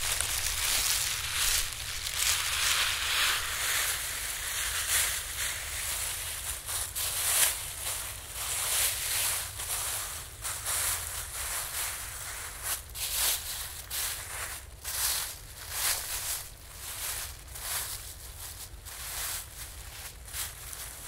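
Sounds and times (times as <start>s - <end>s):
plastic sheet crinkling: 0.0s - 7.4s.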